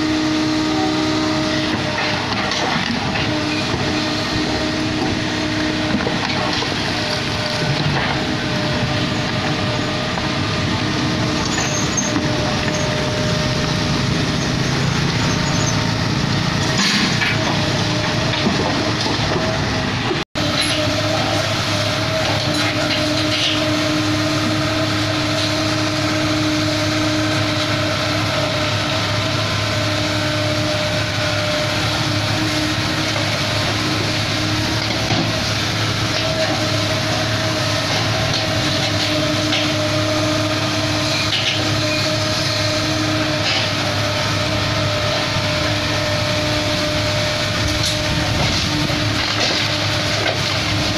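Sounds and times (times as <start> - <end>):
excavator diesel engine running: 0.0 - 50.9.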